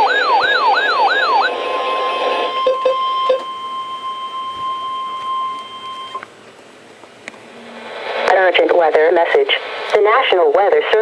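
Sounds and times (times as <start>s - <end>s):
steady warning alert tone: 0.0s - 6.2s
short low beeps: 2.5s - 6.3s.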